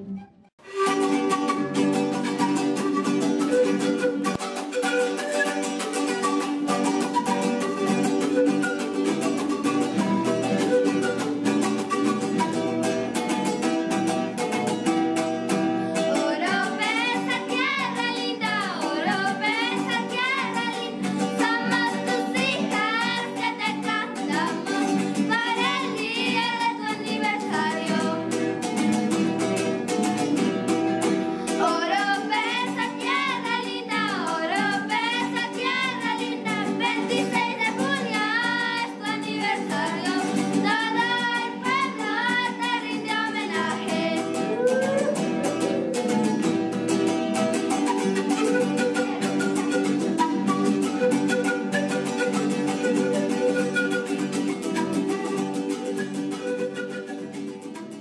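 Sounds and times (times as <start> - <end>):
acoustic guitar and charango strumming: 0.0 - 58.0
girls singing in high voices: 16.1 - 28.2, 31.6 - 44.7.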